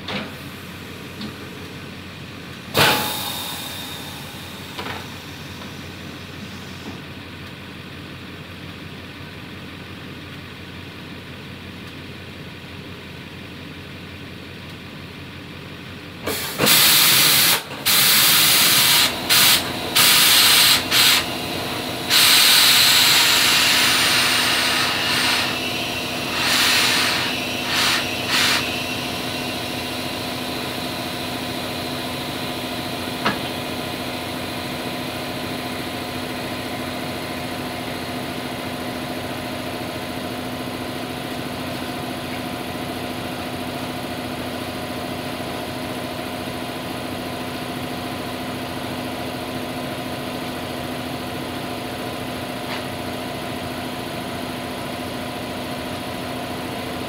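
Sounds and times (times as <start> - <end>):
steady machine hum: 0.0 - 8.2, 16.3 - 57.0
compressed air hissing: 16.3 - 31.7.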